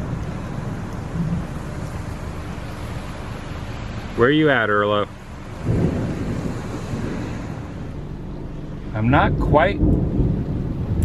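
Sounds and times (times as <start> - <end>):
steady rain hiss: 0.0 - 11.0
deep thunder rumble: 5.6 - 11.0.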